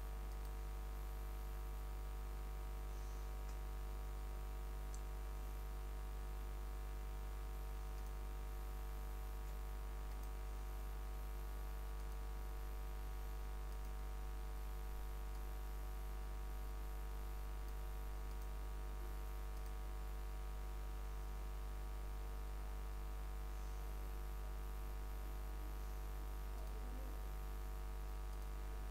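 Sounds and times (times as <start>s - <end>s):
steady low hum: 0.0s - 28.9s
faint clicks: 7.9s - 8.2s, 9.4s - 10.4s, 17.7s - 18.6s, 26.5s - 26.8s, 28.3s - 28.6s.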